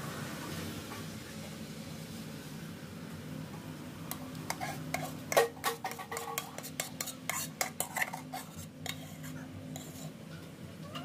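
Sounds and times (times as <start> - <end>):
metal spoon scraping a pot: 4.4 - 10.2.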